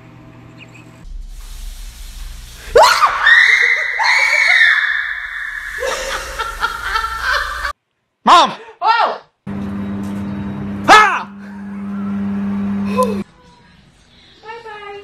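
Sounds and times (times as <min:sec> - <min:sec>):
low hum: 0:00.8 - 0:03.4, 0:09.5 - 0:13.2
woman screaming: 0:02.8 - 0:06.4, 0:08.8 - 0:09.3.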